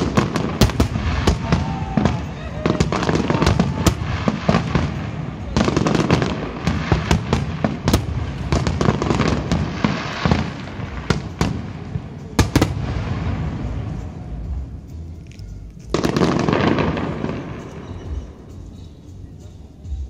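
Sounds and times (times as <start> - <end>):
firework shells bursting: 0.0 - 14.2, 15.2 - 19.1
fireworks crackling: 0.0 - 20.0
continuous rumble: 10.4 - 20.0.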